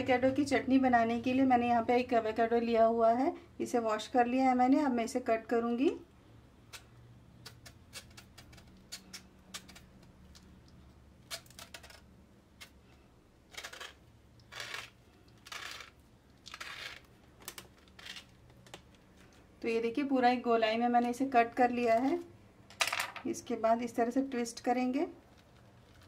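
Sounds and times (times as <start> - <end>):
knife scraping avocado skin: 6.7 - 10.4, 13.5 - 17.2.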